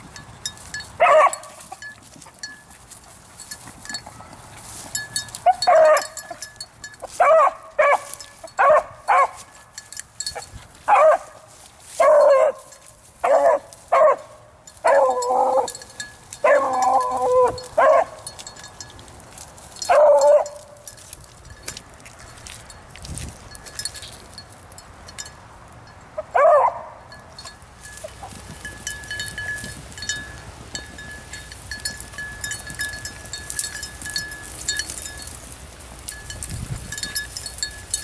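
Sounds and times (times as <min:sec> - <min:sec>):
dog baying: 0:16.4 - 0:18.2.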